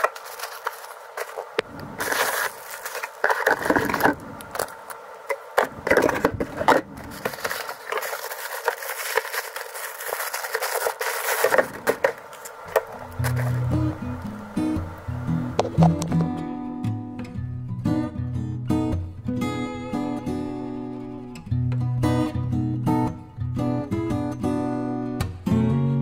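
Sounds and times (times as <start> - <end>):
bubble wrap crinkling: 0.0 - 15.0
acoustic guitar music: 11.6 - 26.0.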